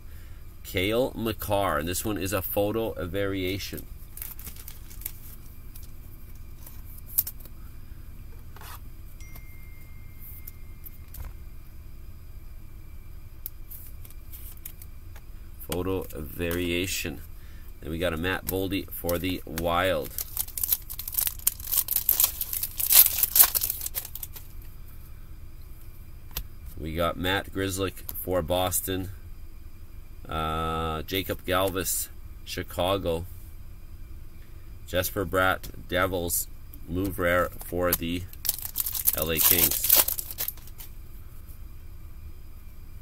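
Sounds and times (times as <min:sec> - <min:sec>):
steady low hum: 0:00.0 - 0:43.0
cards clicking and rubbing: 0:03.7 - 0:07.5, 0:13.7 - 0:16.8, 0:18.4 - 0:24.6, 0:37.0 - 0:40.9
foil wrapper tearing and crinkling: 0:04.0 - 0:05.9, 0:19.8 - 0:24.5, 0:37.9 - 0:40.9.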